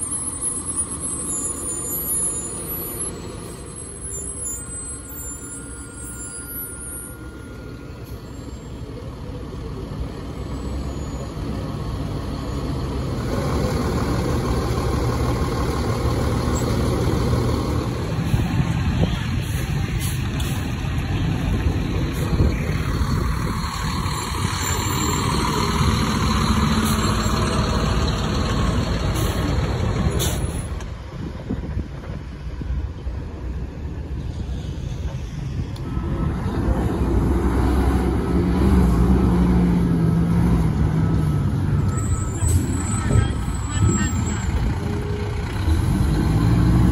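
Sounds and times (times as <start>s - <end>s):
diesel engine idling: 0.0s - 30.1s.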